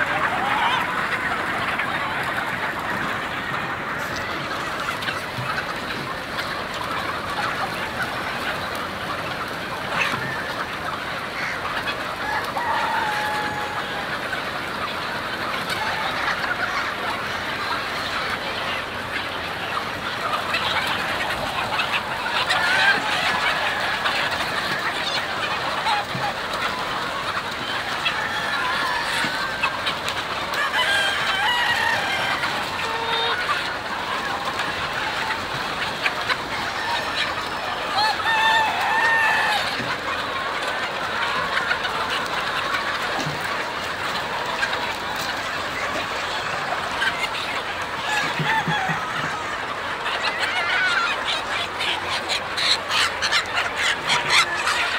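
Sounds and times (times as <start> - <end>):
chickens clucking and cackling: 0.0 - 54.9
roosters crowing: 11.3 - 14.2, 27.3 - 29.8, 30.5 - 34.1, 36.4 - 40.1, 47.9 - 51.1.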